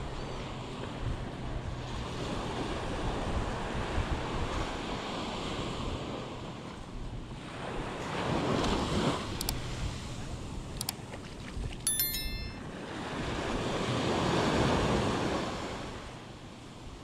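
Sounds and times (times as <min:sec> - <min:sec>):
surf washing on a beach: 0:01.9 - 0:10.6.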